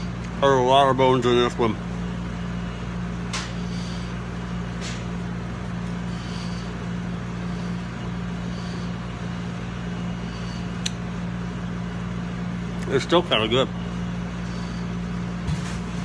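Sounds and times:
machine humming: 0.0s - 16.0s
chewing clicks: 10.8s - 11.0s.

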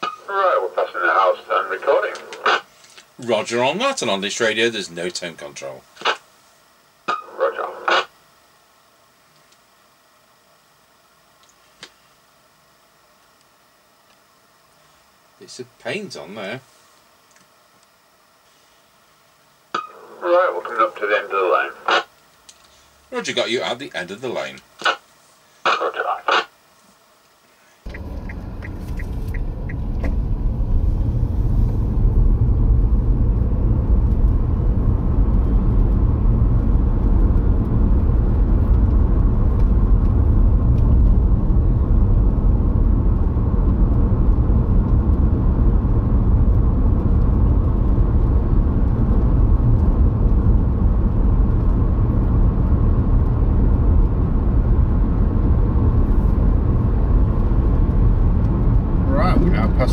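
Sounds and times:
car engine and tyre rumble: 27.9s - 59.9s.

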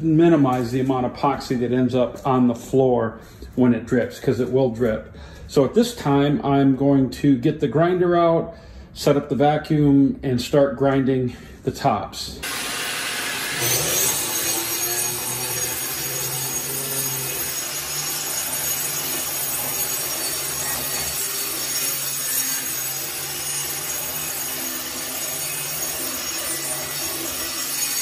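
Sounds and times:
grinder grinding stone: 12.4s - 28.0s.

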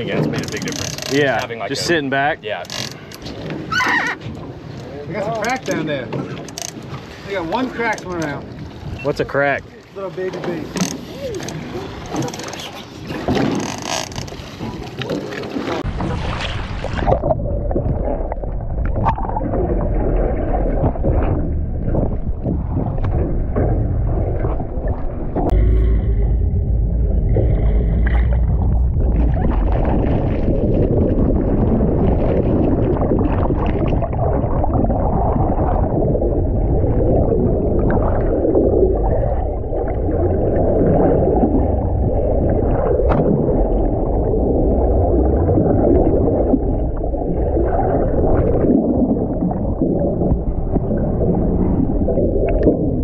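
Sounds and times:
boat engines rumbling: 0.0s - 16.3s, 23.4s - 31.1s
water washing against hull: 0.0s - 53.0s.

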